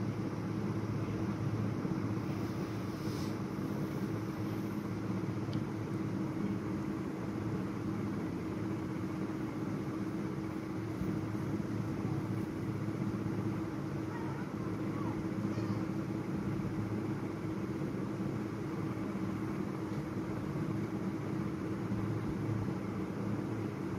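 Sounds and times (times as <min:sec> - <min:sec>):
low machine hum: 0:00.0 - 0:23.9.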